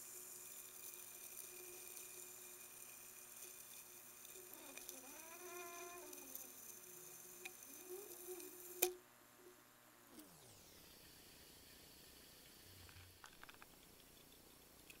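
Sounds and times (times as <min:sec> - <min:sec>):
wavering pitched whine: 0:10.1 - 0:11.6.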